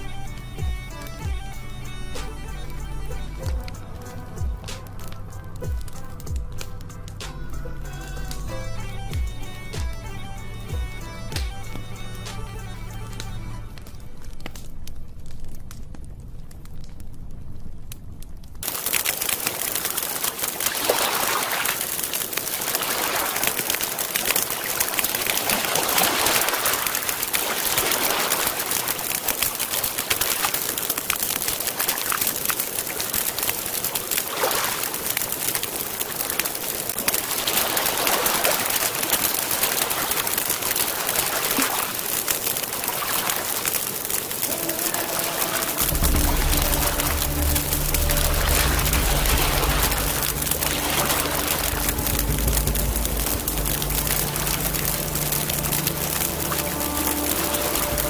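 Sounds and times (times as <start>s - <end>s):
campfire crackling: 0.0s - 58.0s
water lapping on stony shore: 18.6s - 58.0s.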